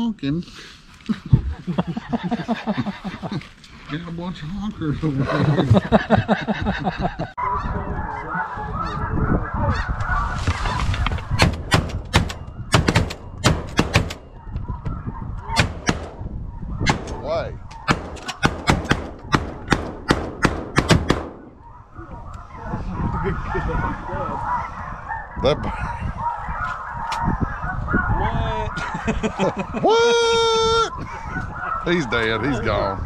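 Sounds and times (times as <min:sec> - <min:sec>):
geese honking: 0:07.4 - 0:11.4
shotgun shots: 0:11.4 - 0:14.4, 0:15.5 - 0:21.5.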